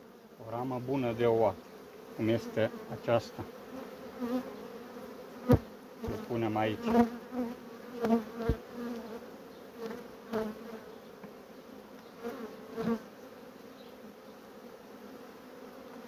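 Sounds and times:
bee colony humming: 0.0 - 16.0
bees buzzing past: 0.0 - 16.0
wooden knocks of hive frames: 5.4 - 9.2.

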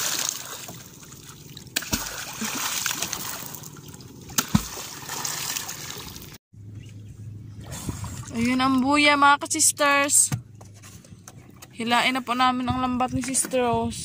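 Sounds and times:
water splashing: 0.0 - 6.4, 7.6 - 8.9
pole thumping into water: 1.8 - 3.4, 4.3 - 5.6.

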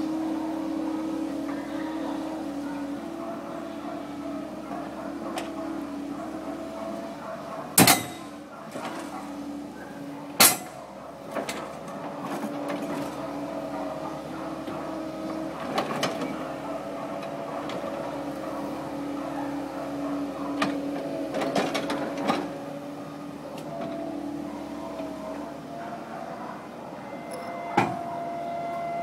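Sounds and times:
excavator diesel engine and hydraulics: 0.0 - 29.0.

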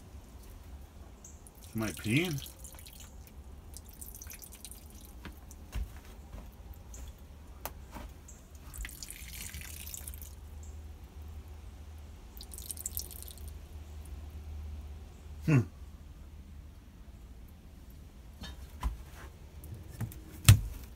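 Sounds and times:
water dripping: 0.3 - 5.7, 8.4 - 11.3, 12.3 - 14.2.

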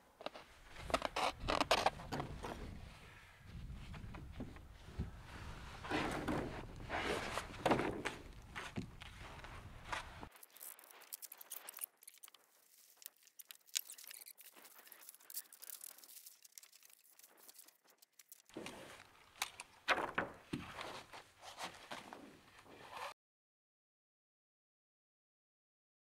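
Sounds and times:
plastic membrane rustling: 0.2 - 22.5
sharp clicks and ticks: 10.3 - 18.6.

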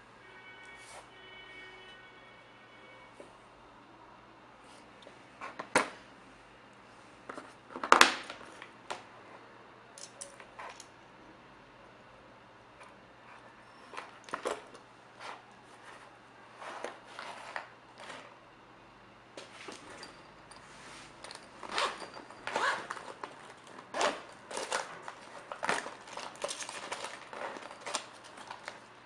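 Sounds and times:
plastic clicks and rustles: 21.2 - 28.9.

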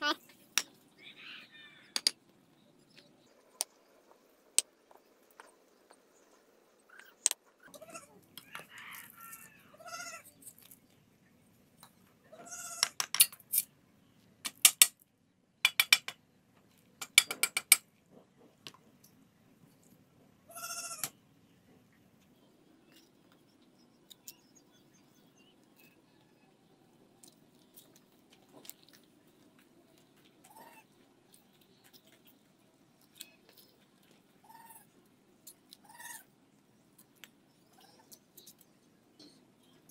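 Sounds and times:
farm animal calling: 30.4 - 30.9, 34.4 - 35.0, 35.8 - 36.3.

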